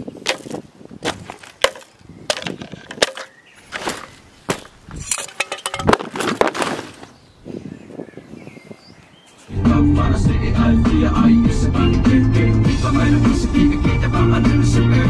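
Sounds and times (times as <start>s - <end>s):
hard objects clattering: 0.3s - 7.0s.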